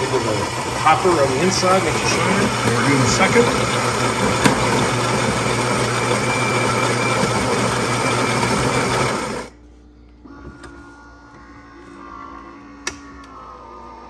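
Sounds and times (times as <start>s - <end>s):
coffee grinder grinding beans: 0.0s - 9.5s
espresso machine running quietly: 0.0s - 9.6s.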